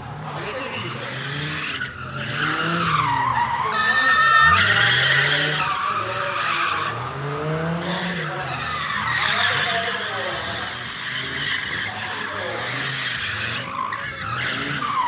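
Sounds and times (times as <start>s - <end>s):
car engine revving: 0.0s - 15.0s
tyres squealing on tarmac: 0.0s - 15.0s.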